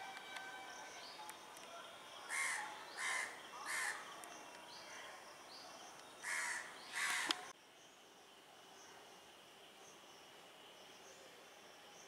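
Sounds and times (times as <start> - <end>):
faint background chirping: 0.0 - 12.0
crow cawing: 2.3 - 4.0, 6.2 - 7.4.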